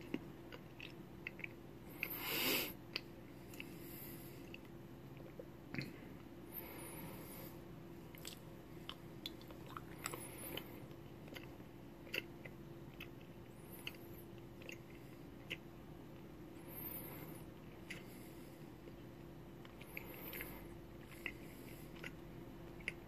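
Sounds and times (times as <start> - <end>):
person chewing crunchily: 0.0 - 6.0, 8.1 - 23.0
faint steady hum: 0.0 - 23.0.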